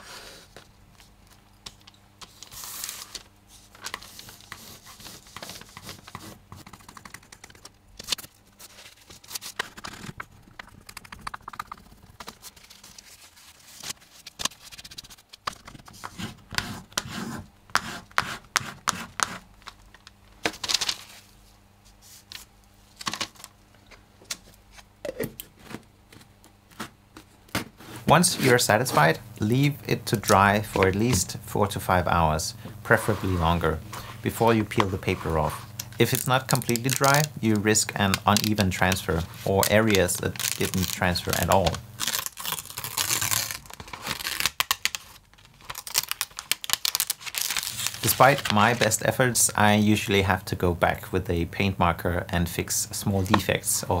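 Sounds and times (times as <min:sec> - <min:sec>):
bone folder scraping over paper: 0:32.9 - 0:35.7.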